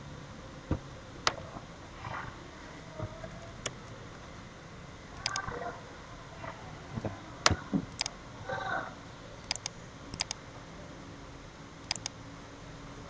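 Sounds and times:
computer mouse clicking: 5.2s - 5.5s, 7.9s - 8.1s, 9.4s - 10.4s, 11.8s - 12.2s.

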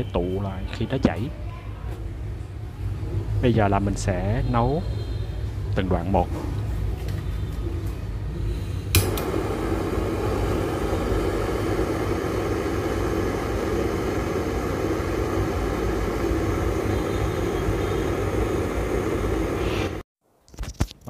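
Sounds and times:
gas torch ignition click: 8.9s - 20.0s
torch flame roaring hiss: 8.9s - 20.0s.

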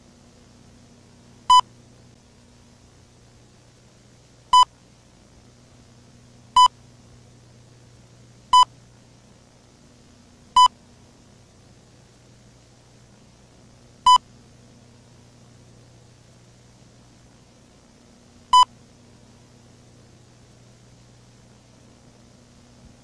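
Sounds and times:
faint low hum and hiss: 0.0s - 23.0s.

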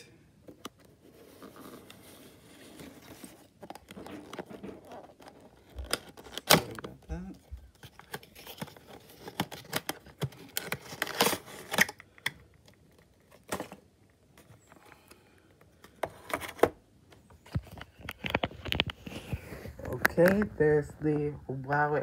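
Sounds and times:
plastic packaging crinkling: 1.3s - 6.9s, 7.6s - 13.8s.

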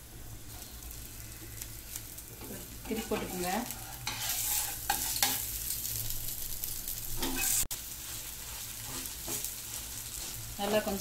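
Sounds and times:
batter sizzling in oil: 0.0s - 11.0s
metal spatula scraping: 2.4s - 5.8s, 7.2s - 11.0s.

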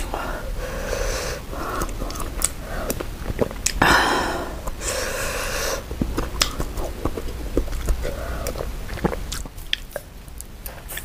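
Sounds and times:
spoon and mouth clicks: 6.0s - 11.0s.

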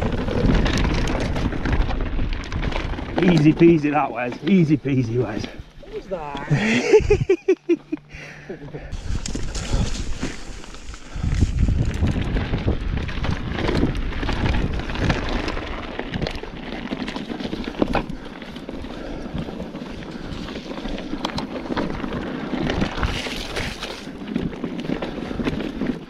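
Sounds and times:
tyres crunching on stony trail: 0.0s - 7.1s, 7.7s - 26.0s
bike knocking and rattling: 0.0s - 8.0s, 8.6s - 26.0s
wind buffeting microphone: 8.9s - 16.7s.

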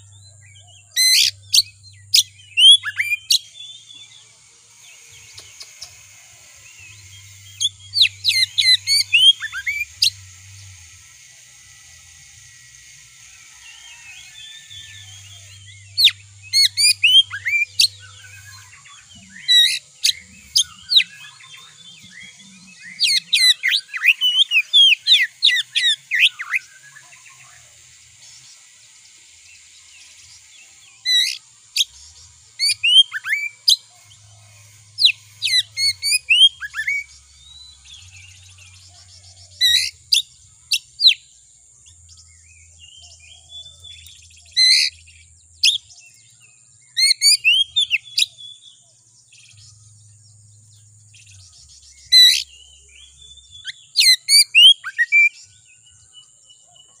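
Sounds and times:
bird singing sharp whistles: 1.0s - 3.5s, 53.6s - 55.4s.

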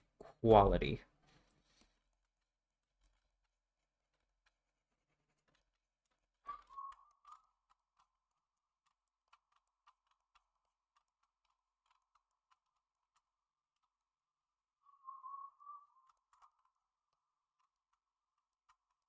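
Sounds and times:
computer keyboard clicks: 6.5s - 14.0s.

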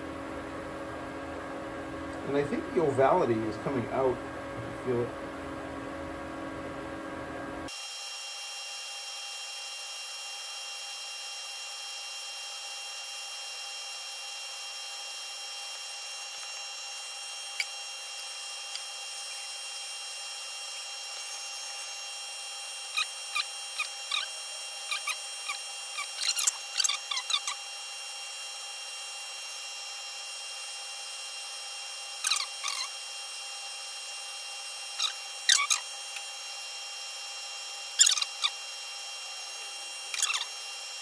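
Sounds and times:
metal lathe whine: 7.7s - 41.0s
short squeaks: 22.9s - 27.6s, 32.2s - 33.0s, 35.0s - 36.3s, 38.0s - 38.6s, 40.1s - 40.6s.

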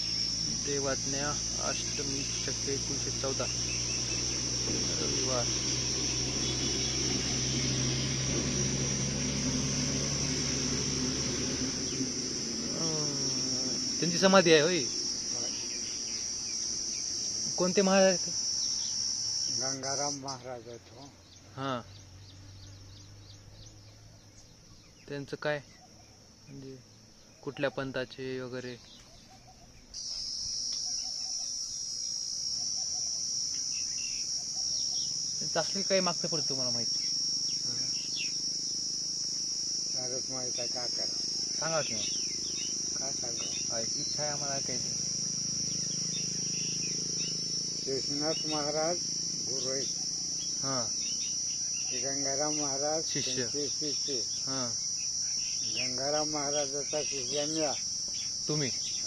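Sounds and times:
engine drone: 0.0s - 21.1s, 33.4s - 59.0s
insects chirring: 0.0s - 59.0s.

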